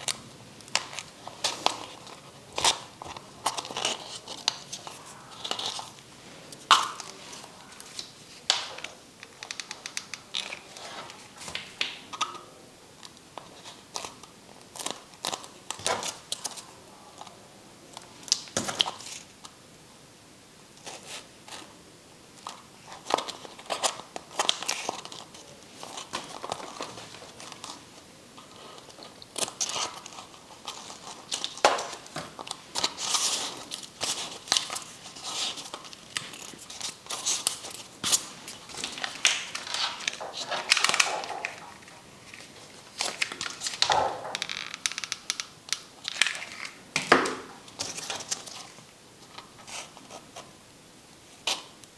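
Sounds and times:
paper and plastic crinkling: 0.0 - 12.2, 13.0 - 17.4, 22.4 - 50.5.

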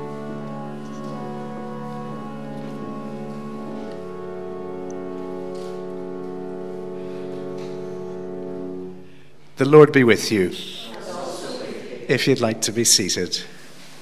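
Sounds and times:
pipe organ chords: 0.0 - 11.0.

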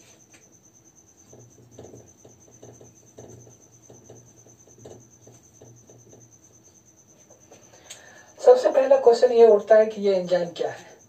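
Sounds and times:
marker squeaking on a whiteboard: 1.1 - 7.7.

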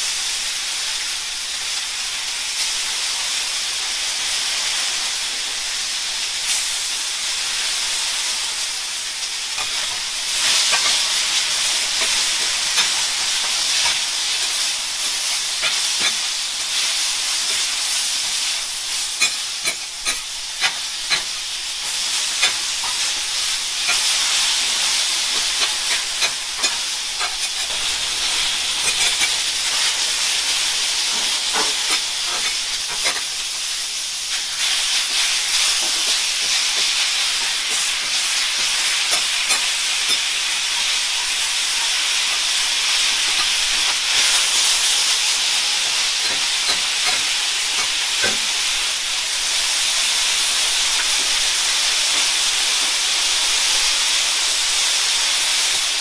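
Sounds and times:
food sizzling on griddle: 0.0 - 56.0
metal spatulas clacking and scraping: 19.2 - 21.3, 25.4 - 27.8, 28.8 - 29.4, 31.1 - 33.3, 35.8 - 40.9, 46.2 - 48.4.

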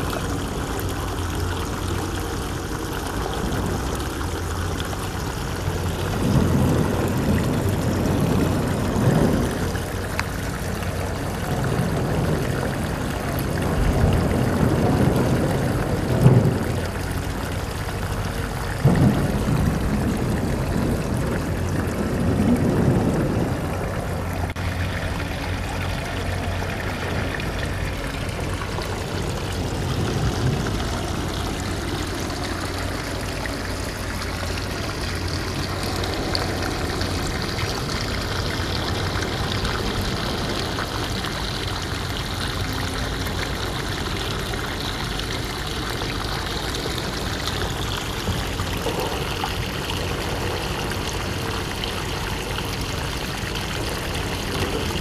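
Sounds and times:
low rumble: 0.0 - 44.3
water washing over pebbles: 0.0 - 55.0.

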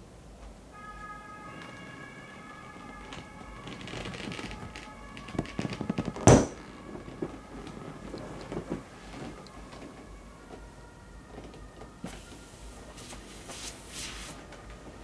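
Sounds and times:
vinyl crackling: 1.5 - 15.0
inflatable toy bursting bang: 6.2 - 6.6.

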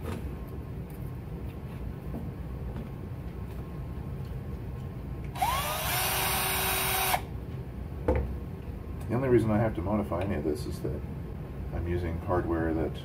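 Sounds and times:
cordless drill whine: 5.3 - 7.3.

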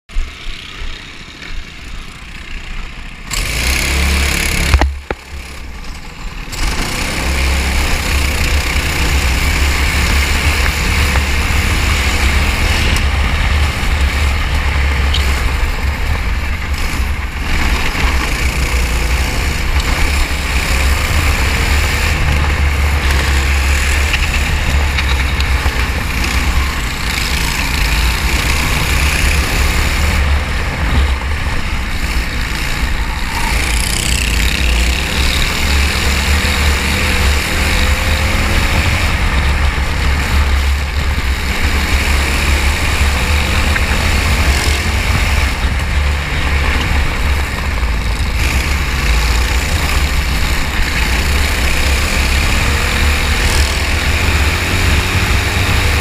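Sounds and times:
kart engine running: 0.1 - 56.0.

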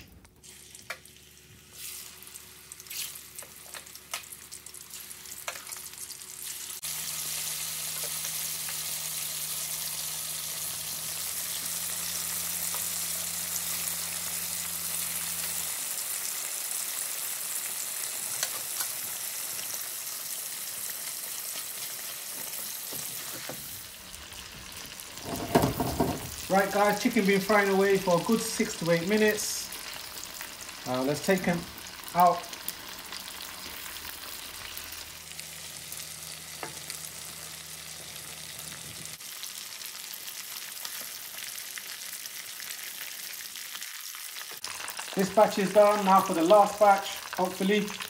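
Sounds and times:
chicken sizzling in hot oil: 0.0 - 48.0.

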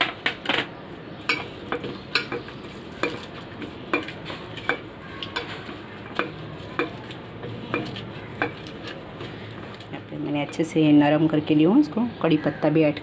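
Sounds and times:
wet mashing by hand: 1.3 - 10.0.

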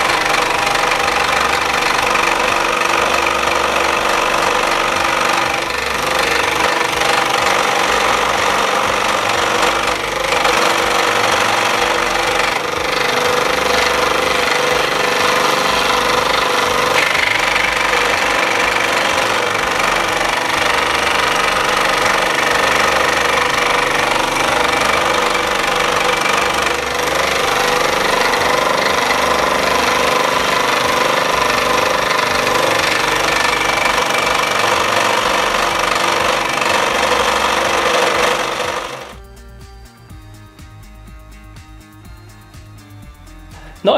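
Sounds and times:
scroll saw cutting wood: 0.0 - 39.2.

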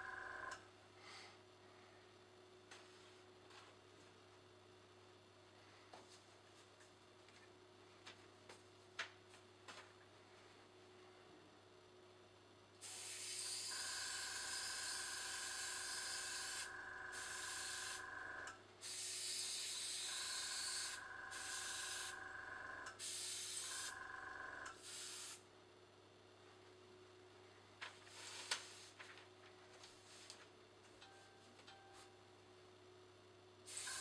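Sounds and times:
compressor whining and humming: 0.0 - 34.0
airbrush spraying hiss: 12.8 - 13.8, 18.8 - 22.1, 23.0 - 23.9, 24.8 - 25.4, 33.7 - 34.0.

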